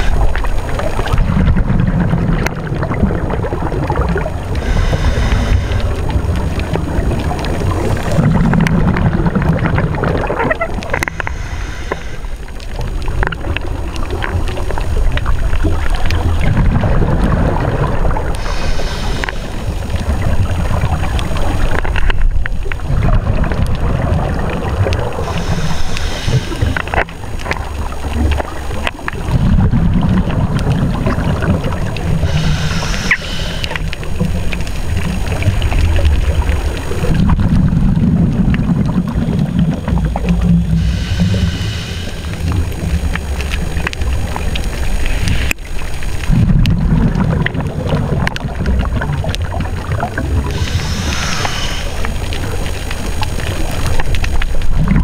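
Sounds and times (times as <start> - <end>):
regulator inhale hiss: 0.0 - 0.9, 4.5 - 8.2, 11.0 - 13.3, 18.1 - 21.7, 25.1 - 28.5, 31.2 - 35.4, 39.5 - 46.4, 50.0 - 54.3
low bubbling underwater: 0.0 - 55.0.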